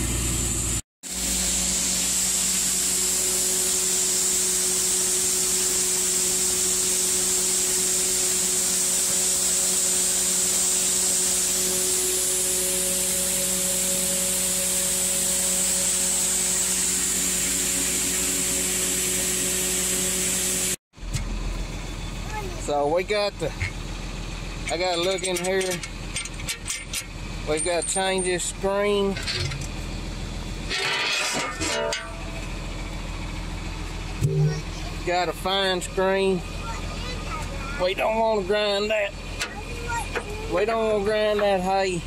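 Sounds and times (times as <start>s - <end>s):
grinder whirring hiss: 0.6s - 20.8s
low steady hum: 27.6s - 36.7s.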